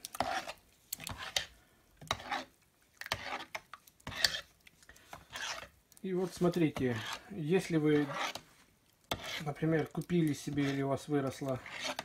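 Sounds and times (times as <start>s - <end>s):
metal utensil scraping pot: 0.0s - 4.5s, 5.1s - 8.5s, 9.1s - 12.0s
stirring mash in a pot: 0.0s - 12.0s.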